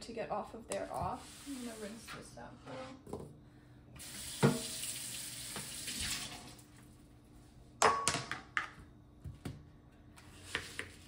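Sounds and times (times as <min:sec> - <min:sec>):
kitchen tap running: 0:04.0 - 0:06.7.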